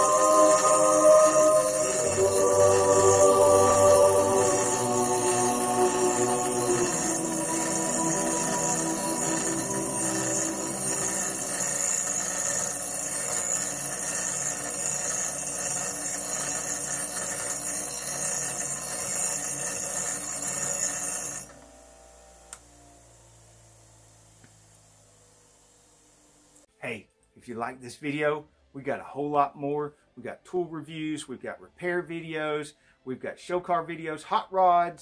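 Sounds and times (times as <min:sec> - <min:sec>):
bench grinder grinding steel: 0:00.0 - 0:22.1.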